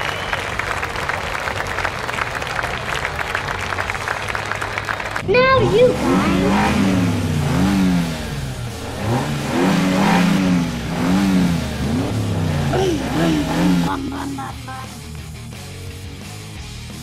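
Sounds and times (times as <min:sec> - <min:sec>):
race car engine revving: 0:01.7 - 0:15.9
music: 0:13.9 - 0:17.0.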